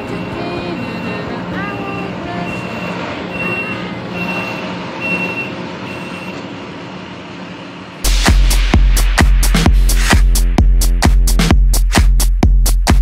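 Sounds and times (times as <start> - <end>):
reversing alarm beeping: 0.0 - 6.5
truck engine humming: 0.0 - 8.1
loud dance music: 8.0 - 13.0.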